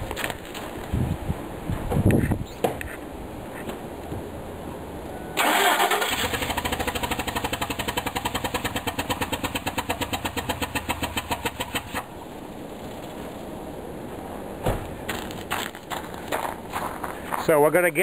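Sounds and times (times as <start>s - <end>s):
engine running with rhythmic chuffing tick: 6.0s - 12.2s.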